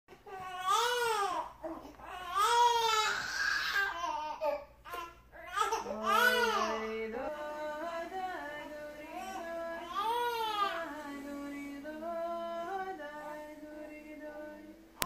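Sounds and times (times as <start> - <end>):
infant crying: 0.1 - 7.0, 9.1 - 11.0.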